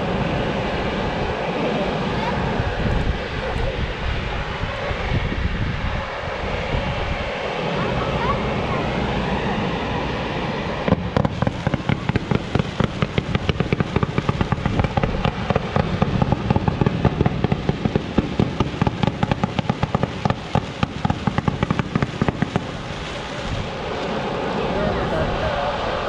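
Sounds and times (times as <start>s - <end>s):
fireworks bangs: 10.8s - 23.5s.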